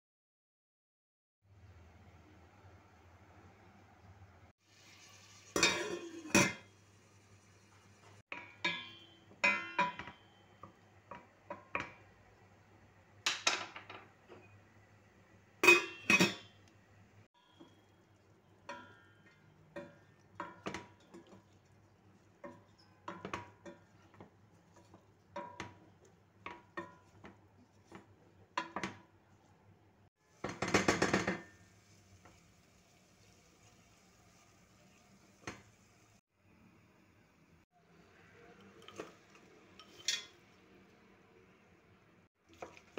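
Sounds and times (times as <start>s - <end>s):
utensils clanking on metal pot: 5.5s - 6.7s, 8.3s - 12.0s, 15.6s - 16.6s, 18.6s - 21.6s, 38.6s - 40.4s.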